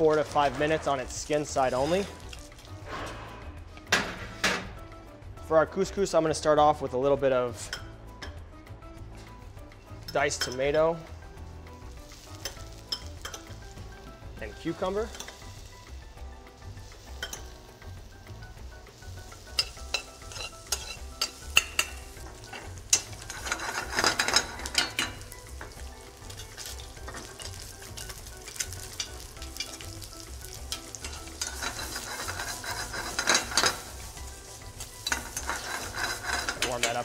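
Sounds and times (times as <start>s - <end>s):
vegetables sizzling in a pan: 10.9s - 37.0s
fish frying in oil: 16.8s - 37.0s
metal spoon clicking on pan: 19.5s - 22.0s.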